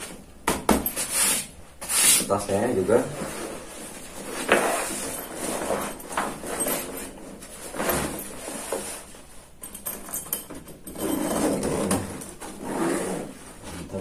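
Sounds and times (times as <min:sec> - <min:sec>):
zipper rasping: 0:10.9 - 0:13.4.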